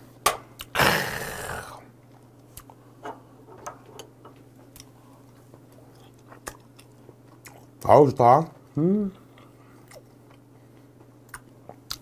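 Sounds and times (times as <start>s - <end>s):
man exhaling loudly: 0.8s - 1.8s
quiet chewing: 4.6s - 7.9s, 8.7s - 12.0s.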